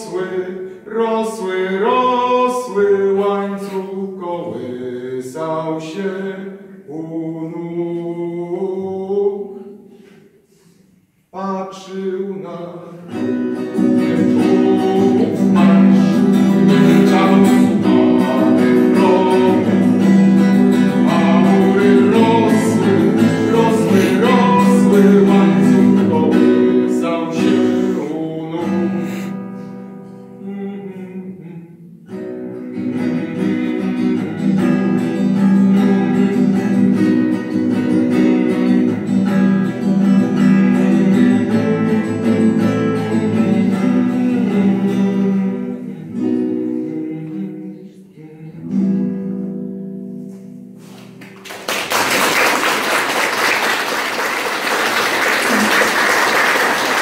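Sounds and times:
classical guitar playing: 12.9 - 30.5, 31.2 - 47.8, 48.5 - 51.6.

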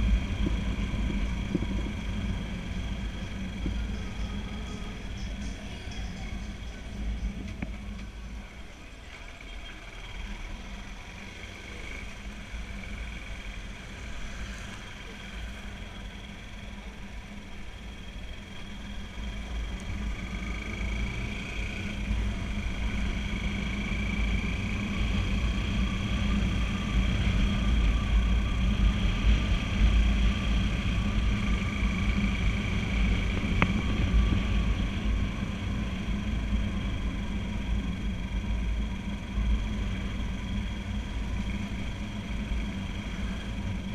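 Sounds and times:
wind rumble on microphone: 0.0 - 4.9, 22.1 - 41.6
motorcycle engine hum: 0.0 - 43.9.

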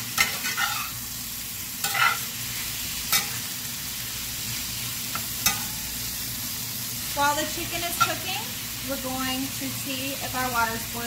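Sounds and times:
metal spatula scraping a pan: 0.0 - 1.0, 1.8 - 3.5, 5.1 - 5.9
chicken sizzling in hot oil: 0.0 - 11.0.

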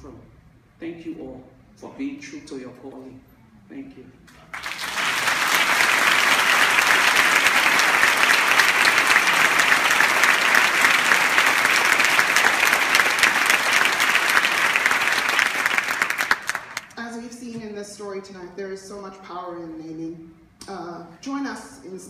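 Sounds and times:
audience applauding: 4.4 - 17.0.

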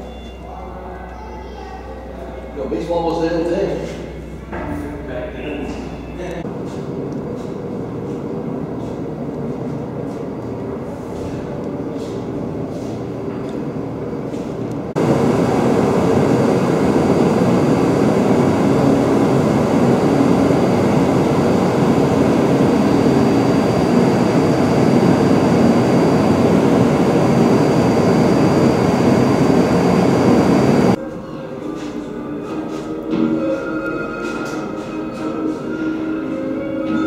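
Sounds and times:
mechanical rumble and rush: 14.9 - 31.0
faint high whine: 15.0 - 31.0.

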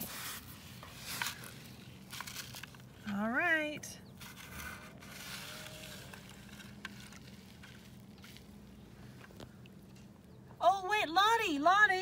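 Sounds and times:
toy scraping over wet sand: 0.0 - 3.2, 4.2 - 8.6
low steady hum: 0.0 - 12.0.

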